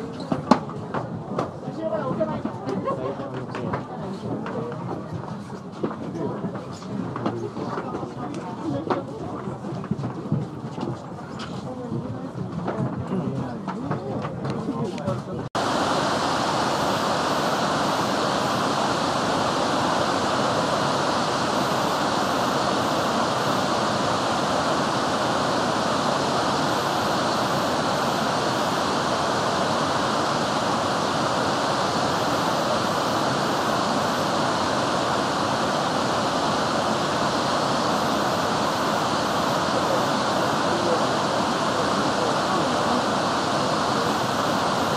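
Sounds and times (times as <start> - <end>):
waterfall roaring: 15.6 - 44.9.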